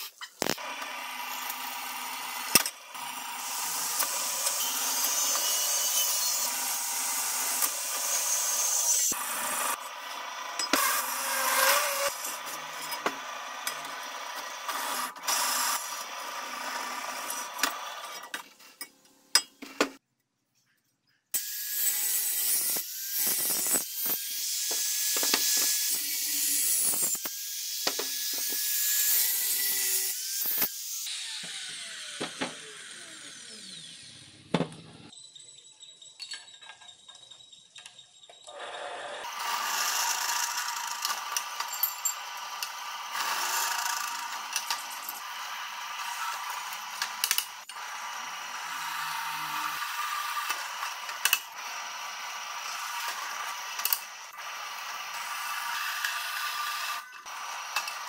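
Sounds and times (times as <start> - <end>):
angle grinder cutting steel: 0.0 - 18.4, 21.4 - 34.5, 38.5 - 58.0
drill press boring steel: 0.4 - 18.3, 38.5 - 58.0
motor winding down: 29.7 - 35.1.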